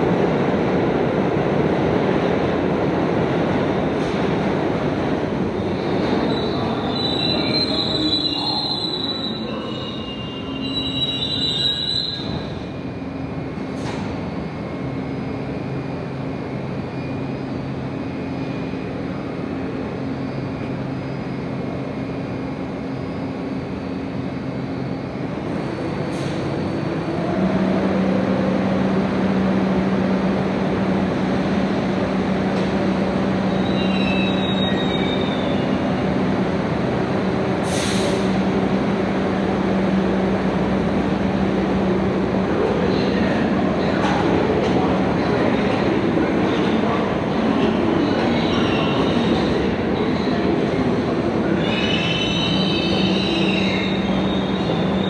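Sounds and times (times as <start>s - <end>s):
subway train rumbling: 0.0s - 55.0s
train wheels squealing on rails: 5.5s - 27.5s, 33.4s - 36.3s, 37.5s - 38.5s, 42.5s - 55.0s.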